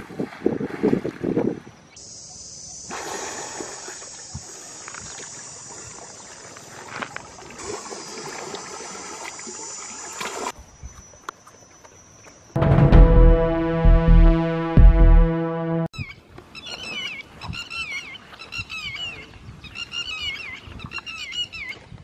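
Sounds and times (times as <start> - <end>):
water splashing and sloshing: 0.0 - 1.8, 3.0 - 10.7.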